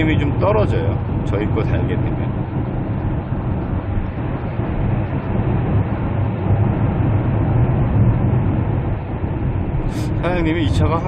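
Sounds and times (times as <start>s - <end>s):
in-cabin road and engine noise: 0.0s - 11.0s
low hum: 0.0s - 11.0s
tunnel roar: 0.0s - 11.0s.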